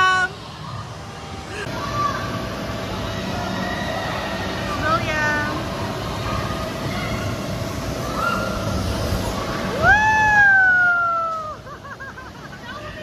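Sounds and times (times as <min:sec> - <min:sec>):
steady rushing noise: 0:00.0 - 0:13.0.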